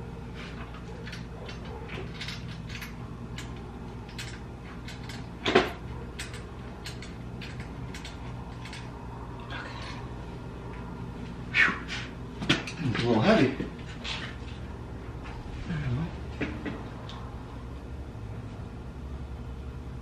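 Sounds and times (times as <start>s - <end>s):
steady low hum: 0.0s - 20.0s
light clicks and taps of parts: 0.5s - 8.9s.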